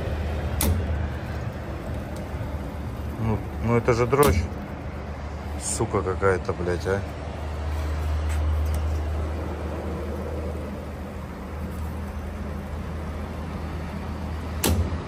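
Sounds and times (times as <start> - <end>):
low machinery hum: 0.0 - 15.0
sharp click: 14.6 - 15.0.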